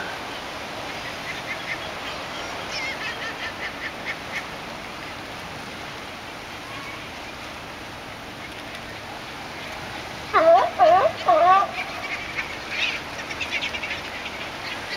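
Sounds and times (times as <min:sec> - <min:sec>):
surf washing: 0:00.0 - 0:14.9
sea lions barking: 0:10.2 - 0:13.5.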